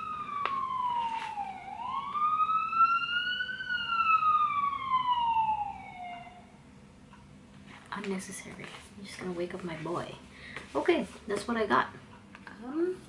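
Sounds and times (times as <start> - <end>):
emergency siren wailing: 0.0 - 6.6.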